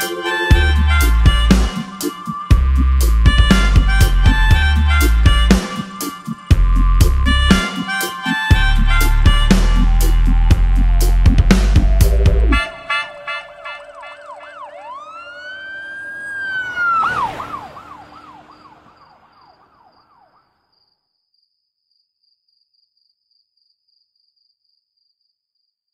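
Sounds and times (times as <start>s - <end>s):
police siren yelp and wail: 12.5s - 20.4s
faint high pulsing chirp: 12.6s - 17.0s.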